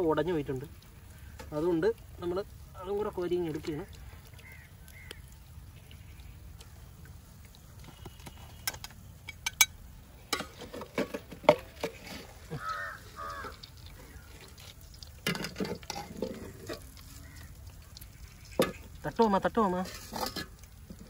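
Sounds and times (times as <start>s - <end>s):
metal spatula scraping steel pot: 10.3s - 12.5s, 15.2s - 17.3s, 18.4s - 21.0s.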